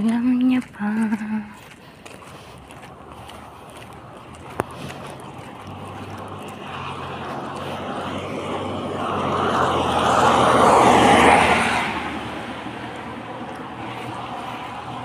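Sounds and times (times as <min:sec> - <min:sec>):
tyres hissing on wet road: 0:04.4 - 0:15.0.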